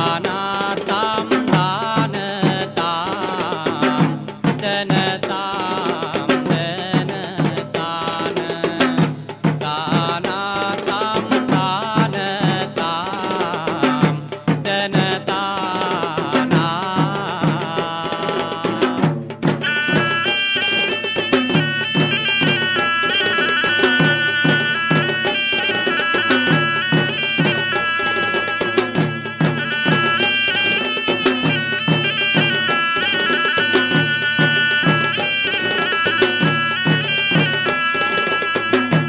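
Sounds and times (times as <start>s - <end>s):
drums beaten in rhythm: 0.0s - 39.0s
shrill reed pipe melody: 19.6s - 39.0s.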